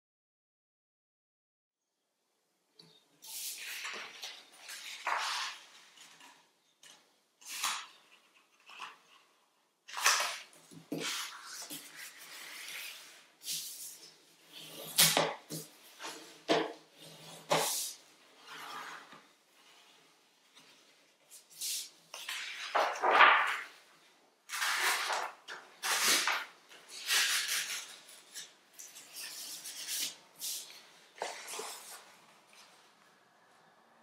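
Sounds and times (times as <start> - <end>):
paper rustling and crinkling: 3.5 - 9.3, 20.5 - 23.9, 24.5 - 33.0.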